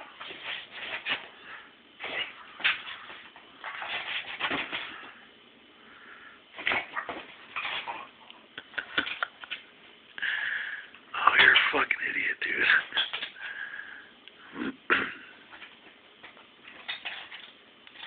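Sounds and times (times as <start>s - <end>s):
dog playing with chew on carpet: 0.1s - 1.3s.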